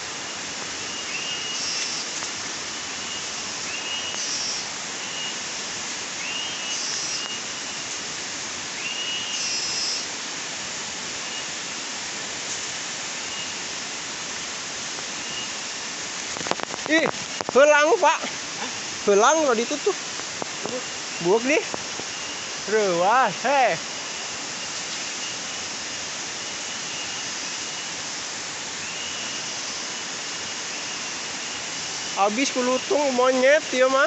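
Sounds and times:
forest hiss: 0:00.0 - 0:34.0
bird call: 0:00.8 - 0:02.1, 0:03.1 - 0:05.4, 0:06.2 - 0:07.4, 0:08.8 - 0:10.1.

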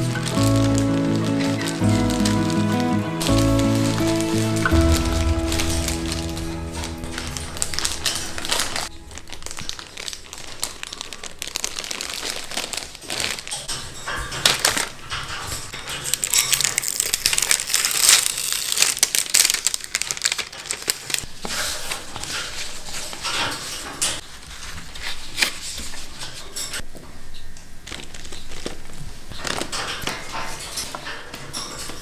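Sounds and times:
paper towel rustling: 0:00.0 - 0:13.5
plastic punnets crinkling: 0:00.0 - 0:26.7, 0:27.8 - 0:32.0.

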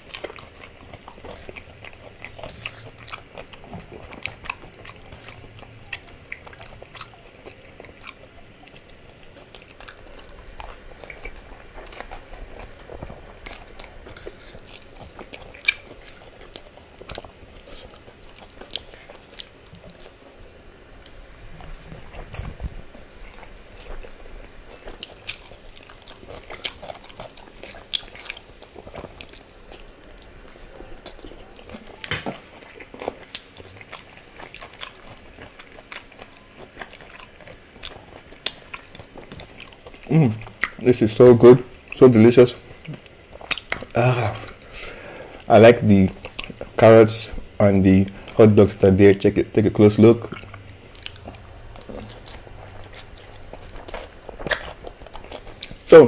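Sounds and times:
chewing spaghetti: 0:00.0 - 0:56.0.

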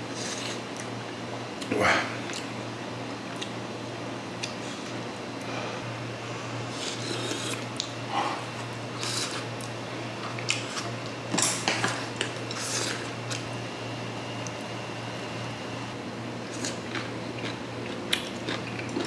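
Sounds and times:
person slurping soup: 0:06.7 - 0:07.6.

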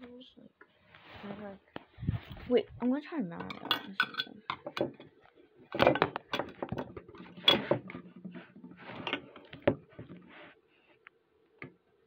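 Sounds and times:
recording device handling noise: 0:00.9 - 0:10.3.

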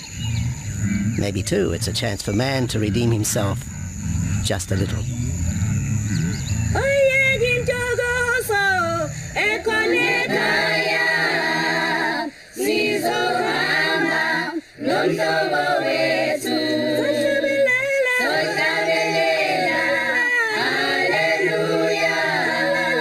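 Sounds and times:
choir singing a cappella: 0:06.0 - 0:23.0.

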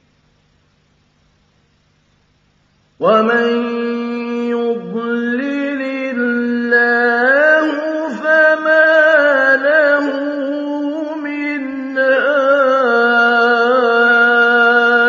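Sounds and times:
man chanting melodically: 0:03.0 - 0:15.0.

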